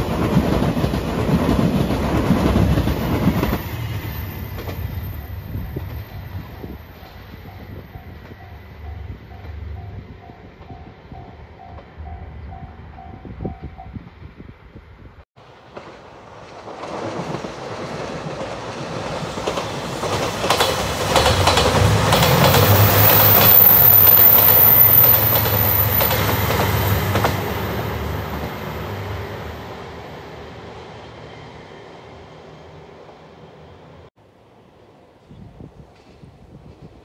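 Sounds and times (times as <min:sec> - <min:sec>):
diesel train engines rumbling: 0:15.4 - 0:34.1
wheels clicking over rail joints: 0:15.5 - 0:23.5.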